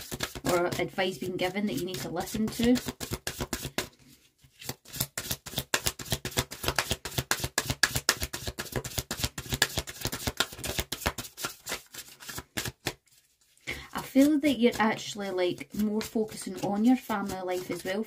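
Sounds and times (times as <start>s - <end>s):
cards being shuffled: 0.0s - 18.0s.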